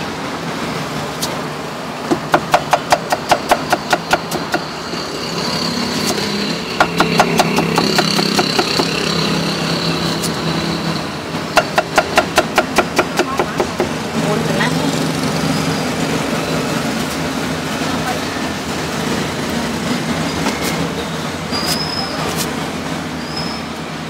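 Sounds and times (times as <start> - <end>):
engine-like hum: 0.0 - 24.0
cleaver chopping on wooden block: 2.1 - 4.7, 6.8 - 9.0, 11.6 - 14.0.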